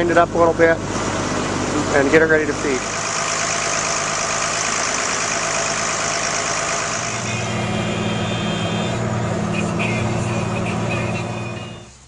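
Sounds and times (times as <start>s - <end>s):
tractor engine running: 0.0s - 12.0s
feed mixer churning and grinding: 1.5s - 7.3s.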